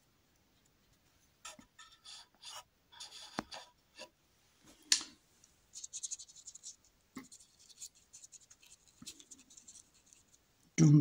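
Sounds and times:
paintbrush scraping on canvas: 0:01.5 - 0:04.1, 0:05.8 - 0:10.4.

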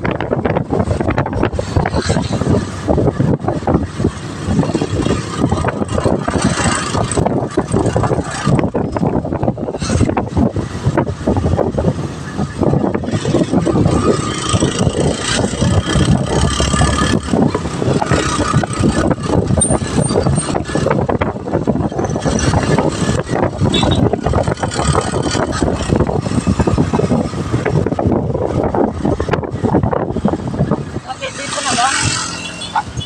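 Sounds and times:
wind buffeting microphone: 0:00.0 - 0:33.0
motorcycle engine running: 0:11.1 - 0:28.4.

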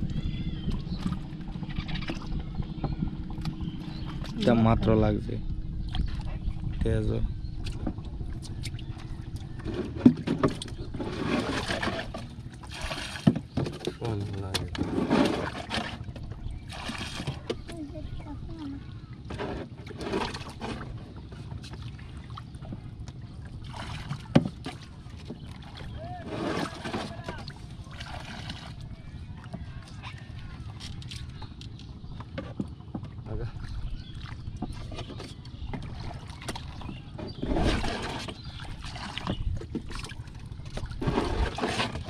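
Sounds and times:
low rumble of water and wind: 0:00.0 - 0:42.0
water poured splashing into river: 0:11.4 - 0:13.3, 0:16.7 - 0:17.4, 0:23.6 - 0:24.3, 0:25.6 - 0:28.8.

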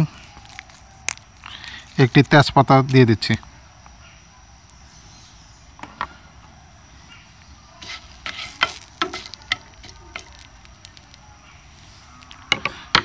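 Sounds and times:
sharp oil crackles: 0:00.0 - 0:04.0, 0:07.4 - 0:13.0
spices sizzling in hot oil: 0:07.8 - 0:12.5.

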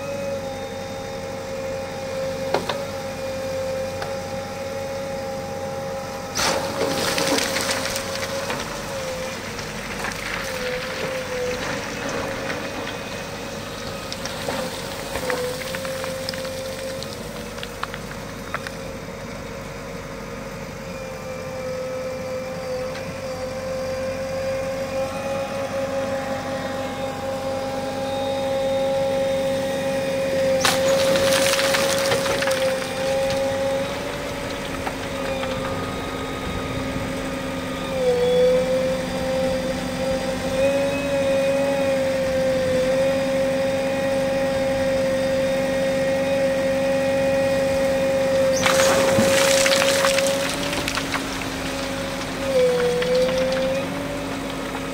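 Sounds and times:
backhoe engine and hydraulics whine: 0:00.0 - 0:54.9
rush of gravel: 0:06.3 - 0:18.8, 0:30.5 - 0:37.4, 0:48.2 - 0:54.9
stones clattering in bucket: 0:06.4 - 0:09.0, 0:30.6 - 0:33.6, 0:48.5 - 0:54.9.

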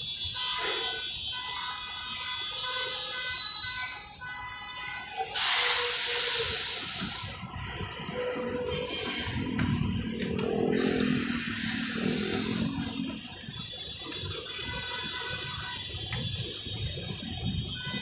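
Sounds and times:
street traffic: 0:00.0 - 0:18.0
air brakes hissing: 0:05.2 - 0:13.2
high whining tones: 0:05.9 - 0:16.3.

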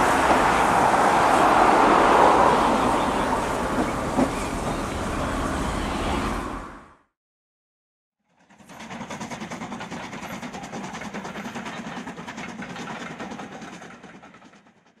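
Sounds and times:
steam train running: 0:00.0 - 0:06.7, 0:08.5 - 0:14.9.

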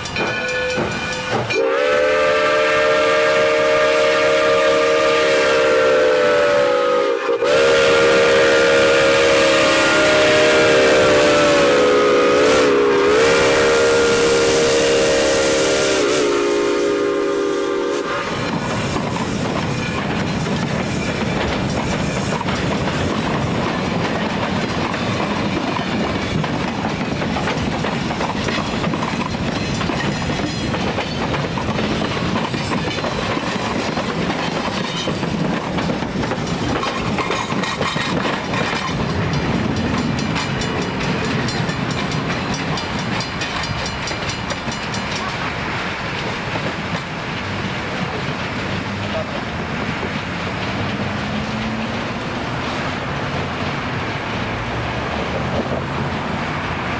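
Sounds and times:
wheels clicking over rail joints: 0:00.0 - 0:01.6, 0:18.2 - 0:56.9
train wheels rumbling on rail: 0:00.0 - 0:56.9.

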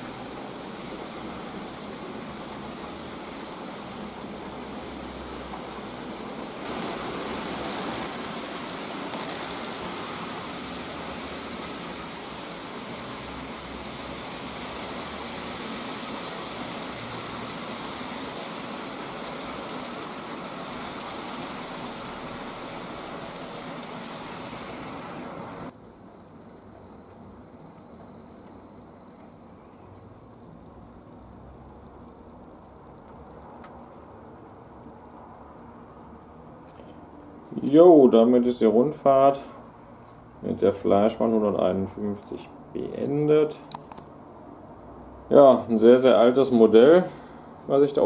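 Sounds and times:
model train wheels rattling on rails: 0:00.0 - 0:36.8.

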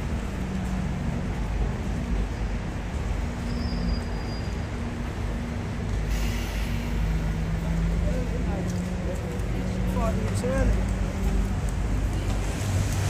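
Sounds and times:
low vehicle engine rumble: 0:00.0 - 0:13.0
short hiss: 0:06.1 - 0:07.0.

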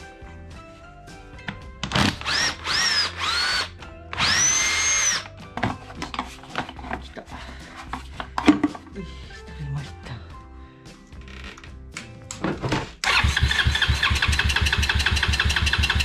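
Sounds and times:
cordless drill whirring: 0:01.9 - 0:05.3
plastic parts clattering: 0:05.6 - 0:07.2, 0:07.8 - 0:08.9.

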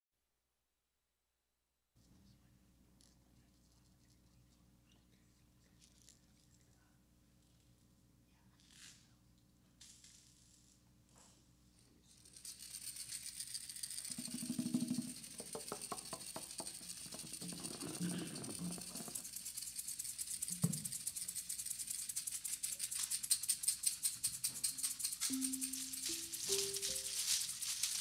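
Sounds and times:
hand percussion rattle shaken: 0:12.1 - 0:28.0.

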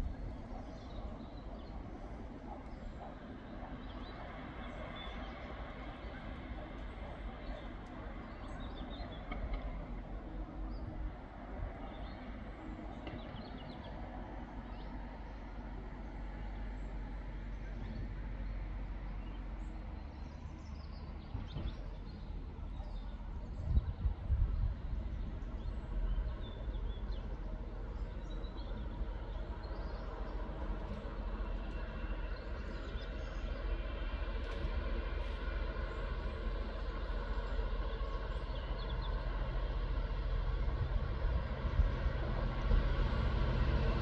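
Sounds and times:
steady low rumble: 0:00.0 - 0:08.7, 0:19.6 - 0:44.0.

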